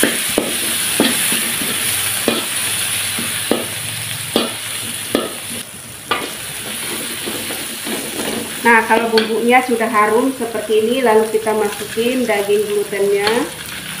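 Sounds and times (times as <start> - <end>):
metal spatula scraping a wok: 0.0 - 9.4
spice paste sizzling in oil: 0.0 - 14.0.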